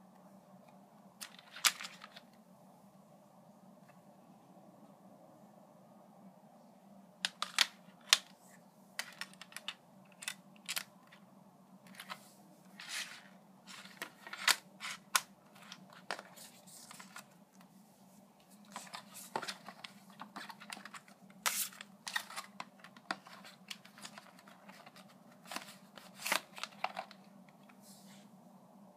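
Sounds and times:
plastic case rustling: 0:01.2 - 0:02.4, 0:09.0 - 0:11.2, 0:11.9 - 0:17.4, 0:18.5 - 0:27.8
plastic case clicking and clacking: 0:07.3 - 0:08.3, 0:09.0 - 0:11.2.

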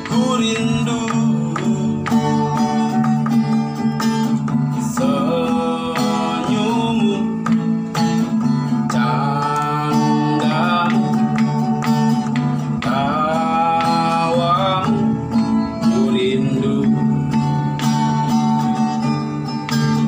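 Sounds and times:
person singing: 0:00.0 - 0:03.3, 0:04.8 - 0:07.6, 0:08.7 - 0:11.9, 0:12.7 - 0:17.8
plucked string instrument: 0:00.0 - 0:20.0.

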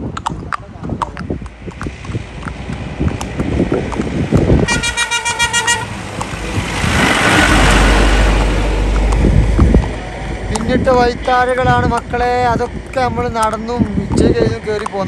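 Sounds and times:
horse hooves on a road: 0:00.0 - 0:15.0
passing vehicle engine and tyres: 0:00.0 - 0:15.0
vehicle horn: 0:04.6 - 0:06.0.

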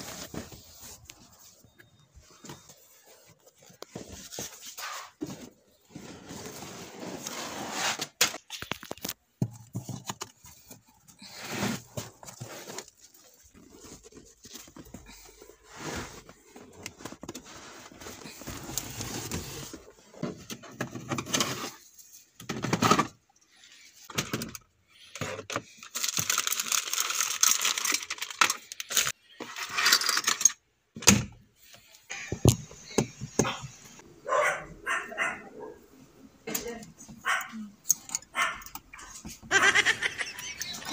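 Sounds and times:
rustling and crinkling: 0:00.0 - 0:30.5.

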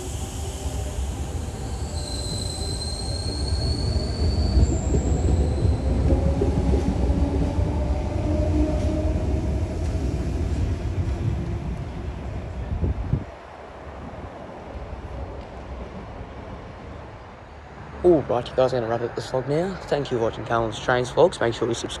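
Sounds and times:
train wheels rumbling: 0:00.0 - 0:17.3
thin high wheel squeals: 0:01.7 - 0:05.7.

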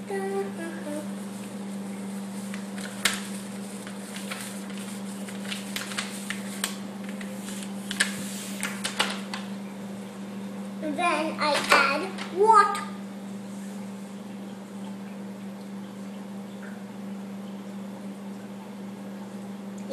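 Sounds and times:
steady low hum: 0:00.0 - 0:19.9
plastic pouch crinkling: 0:02.4 - 0:09.5.

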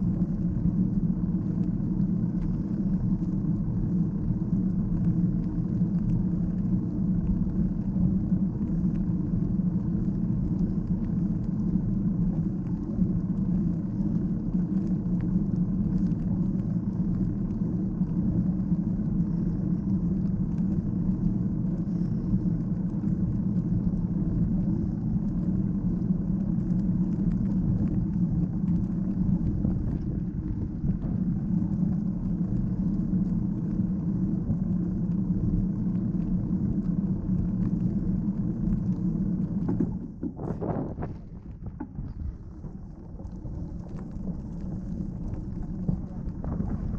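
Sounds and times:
wind buffeting microphone: 0:27.6 - 0:34.1, 0:39.2 - 0:46.9.

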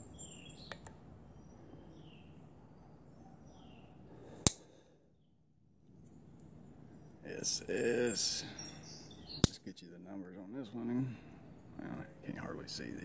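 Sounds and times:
faint bird chirps: 0:00.0 - 0:13.0
background hiss: 0:05.8 - 0:13.0.

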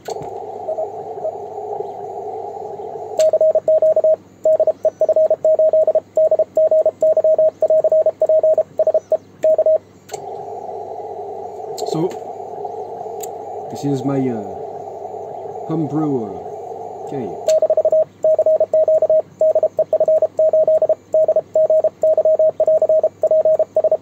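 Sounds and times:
radio receiver hiss: 0:00.0 - 0:04.1, 0:09.5 - 0:18.9
morse code sidetone: 0:03.1 - 0:09.8, 0:15.7 - 0:24.0
relay click: 0:10.1 - 0:10.4.

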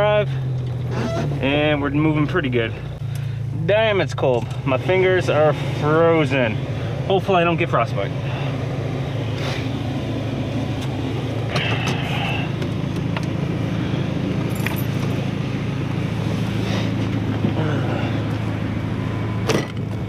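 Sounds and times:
car engine running: 0:00.0 - 0:20.0
short squeak: 0:00.9 - 0:01.4.

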